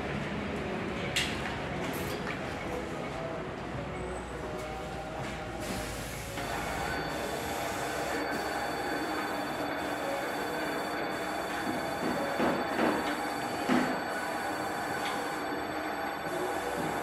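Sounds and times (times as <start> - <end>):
steady whine: 6.2 - 17.0.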